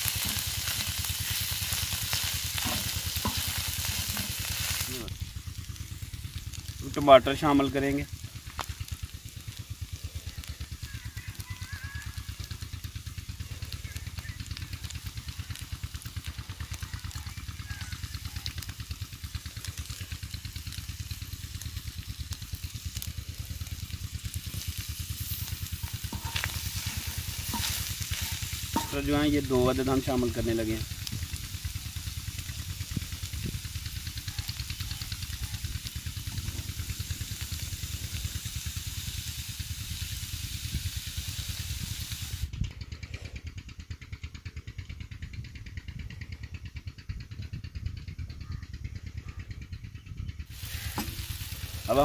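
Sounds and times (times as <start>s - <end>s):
low fast throb: 0.0s - 34.4s
meat sizzling on a hot pan: 0.0s - 42.5s, 50.5s - 52.0s
low mechanical throb: 18.8s - 34.0s.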